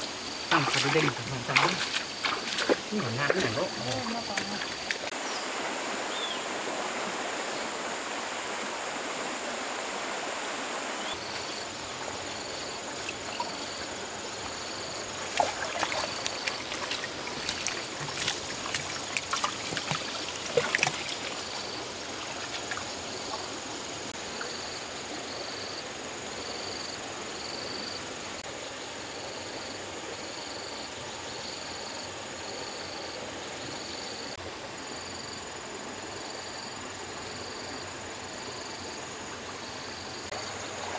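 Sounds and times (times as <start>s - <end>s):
sharp knocks and splashes: 0.0s - 5.2s, 12.5s - 23.6s
river water rushing: 0.0s - 29.2s
high insect drone: 0.0s - 40.9s
insect chirping: 0.0s - 40.9s.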